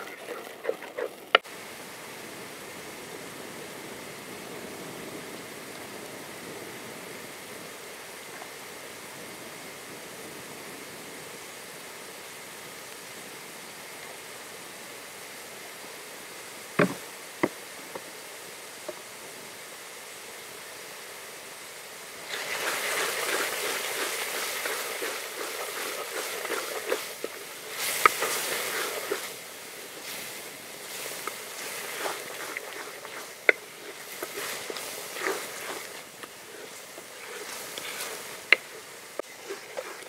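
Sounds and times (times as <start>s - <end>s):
wooden spatula scraping a pot: 0.0s - 1.4s, 22.3s - 29.4s, 30.0s - 40.0s
sharp knocks: 16.8s - 17.6s.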